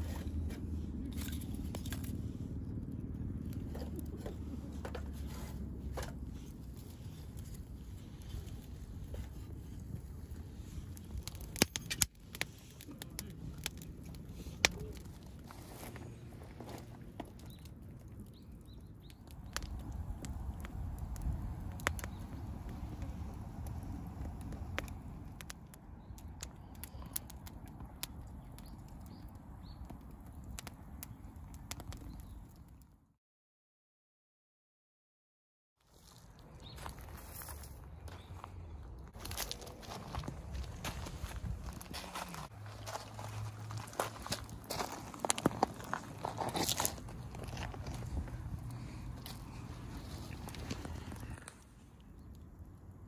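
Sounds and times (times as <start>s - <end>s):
campfire crackling and popping: 0.0s - 32.9s, 39.0s - 53.0s
low fire rumble: 0.0s - 32.9s, 36.0s - 53.0s.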